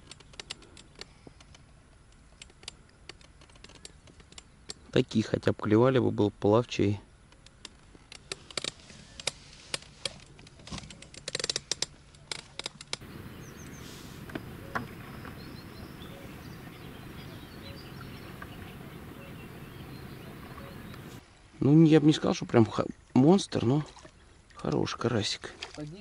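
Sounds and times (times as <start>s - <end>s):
fishing gear clicks and taps: 7.3s - 21.2s
faint bird chirps: 13.0s - 21.2s
outdoor hiss: 13.0s - 21.2s.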